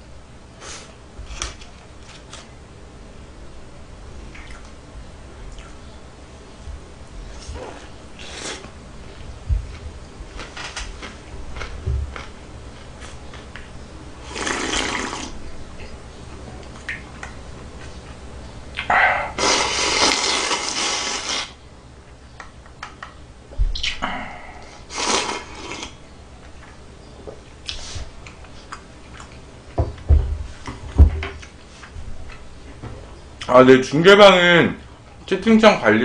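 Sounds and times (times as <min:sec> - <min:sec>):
person slurping noodles: 0:14.2 - 0:15.4, 0:19.3 - 0:21.6, 0:24.9 - 0:26.0
chewing and mouth sounds: 0:27.6 - 0:29.5.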